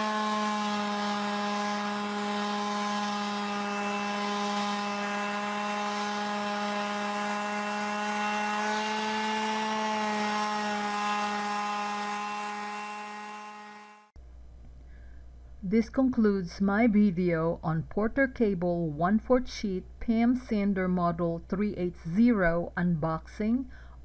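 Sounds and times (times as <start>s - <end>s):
orbital sander on wood: 0.0s - 14.2s.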